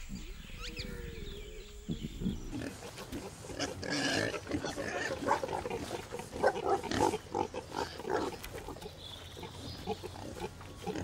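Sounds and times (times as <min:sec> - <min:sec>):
pigs grunting: 0:01.9 - 0:11.0.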